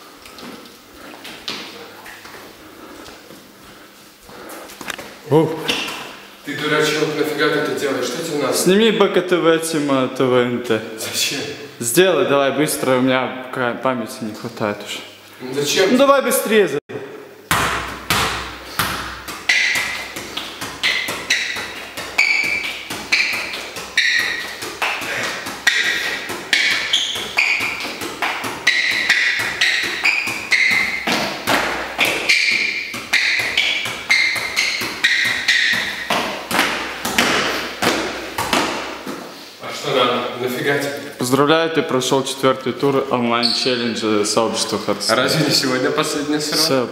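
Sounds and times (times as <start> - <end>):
football taps and thumps: 17.5 - 39.3.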